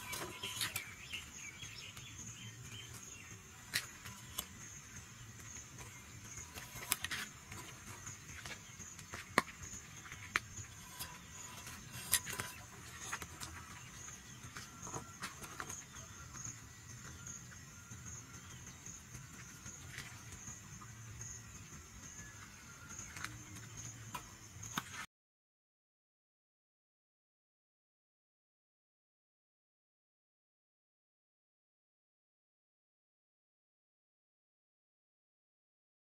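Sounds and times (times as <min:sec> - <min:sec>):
insects trilling: 0:00.0 - 0:25.0
sharp clicks and ticks: 0:00.0 - 0:25.0.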